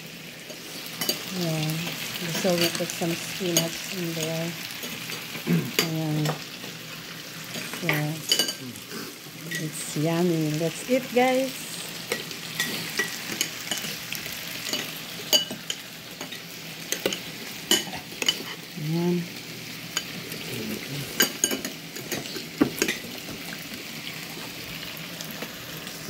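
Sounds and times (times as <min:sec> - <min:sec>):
meat sizzling on a grill: 0:00.0 - 0:26.0
cutlery clicking on ceramic bowls: 0:12.1 - 0:14.0, 0:14.6 - 0:18.6, 0:21.2 - 0:23.2.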